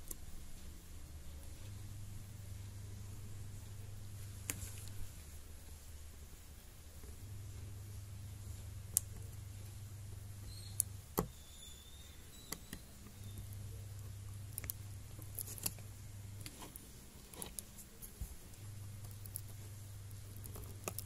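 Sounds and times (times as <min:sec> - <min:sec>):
low hum: 0:00.0 - 0:21.0
cable connector clicks and scratches: 0:20.2 - 0:21.0.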